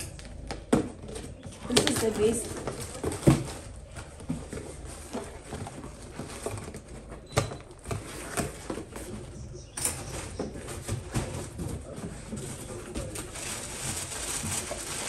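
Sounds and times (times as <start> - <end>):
cardboard rustling and scraping: 0.4 - 15.0.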